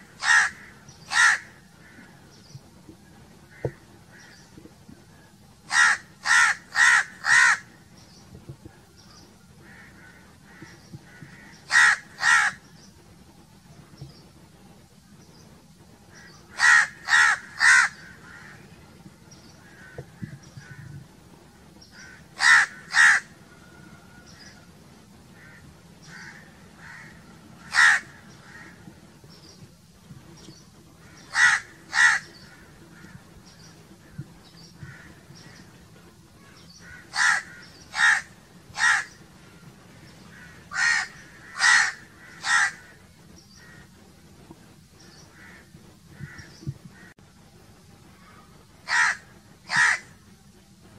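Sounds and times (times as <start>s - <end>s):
faint distant crow caws: 0.0s - 12.9s, 16.1s - 21.1s, 21.8s - 29.5s, 30.8s - 44.2s, 45.0s - 47.4s, 48.1s - 50.4s
crows cawing: 0.1s - 2.2s, 3.5s - 4.4s, 5.7s - 7.8s, 9.6s - 12.6s, 16.1s - 18.7s, 19.6s - 21.0s, 22.0s - 23.4s, 25.4s - 29.0s, 31.0s - 33.2s, 34.8s - 35.7s, 36.4s - 39.6s, 40.3s - 43.9s, 45.3s - 47.1s, 48.2s - 50.2s.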